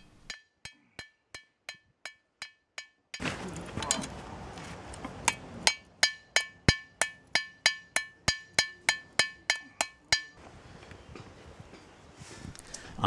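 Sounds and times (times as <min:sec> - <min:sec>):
hammer striking hot steel: 0:05.2 - 0:10.4.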